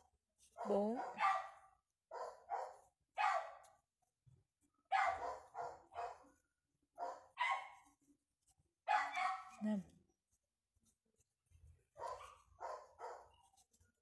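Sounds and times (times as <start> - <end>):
dog barking: 0.6 - 3.7, 4.9 - 6.4, 7.0 - 7.9, 8.8 - 9.6, 11.9 - 13.4.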